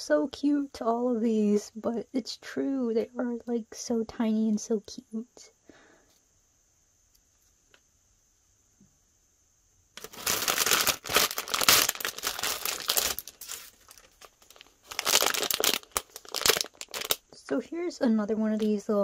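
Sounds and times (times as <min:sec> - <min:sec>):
plastic packaging crinkling: 0:10.0 - 0:17.3.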